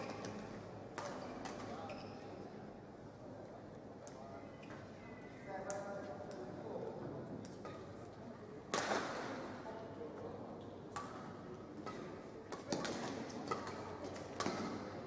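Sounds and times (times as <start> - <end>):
arena background noise: 0.0 - 15.0
rackets hitting shuttlecock: 8.7 - 9.3, 10.9 - 14.9.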